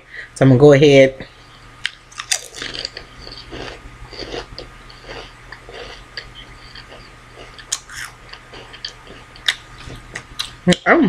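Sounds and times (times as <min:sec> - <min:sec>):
faint low hum: 0:00.0 - 0:11.0
person chewing crunchy chip: 0:01.8 - 0:10.6.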